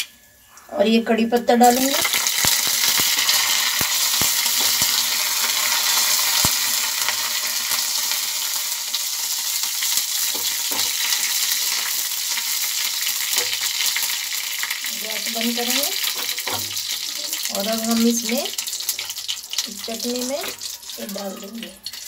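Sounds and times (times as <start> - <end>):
spices sizzling in hot oil: 1.4 - 22.0
sharp pops and crackles: 1.8 - 8.3.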